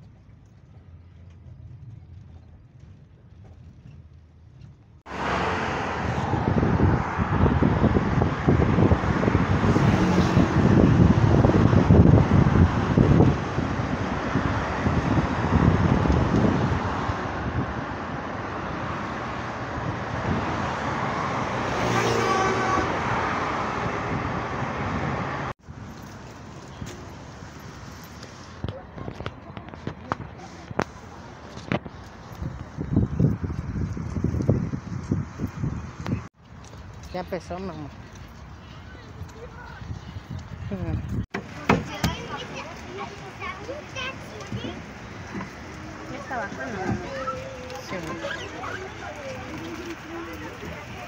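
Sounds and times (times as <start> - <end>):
car engine and tyres rumbling: 0.0 - 51.0
outdoor rushing noise: 4.9 - 36.5
gusty wind noise on microphone: 5.1 - 36.4, 37.1 - 51.0.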